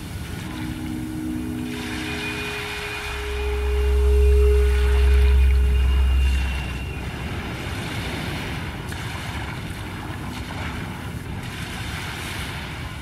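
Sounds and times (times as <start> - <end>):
sea waves: 0.0 - 13.0
wind: 0.0 - 13.0
faint low held tone: 0.4 - 7.6.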